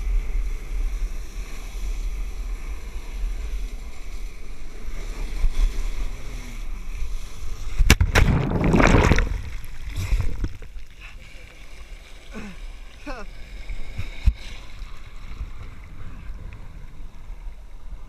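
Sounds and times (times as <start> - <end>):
water churning: 2.2 - 18.0
wind buffeting microphone: 7.6 - 10.7
loud splash into water: 7.8 - 10.6.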